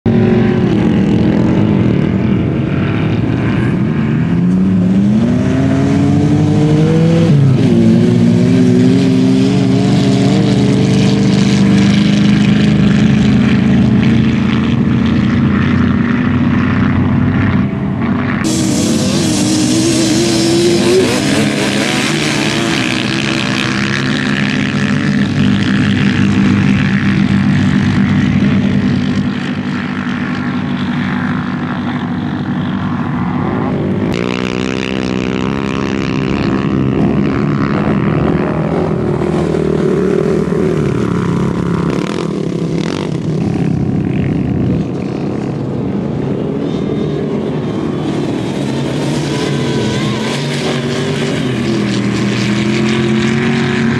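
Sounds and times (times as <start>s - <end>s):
dune buggy engines revving: 0.0s - 53.9s
loud hiss: 18.5s - 21.5s.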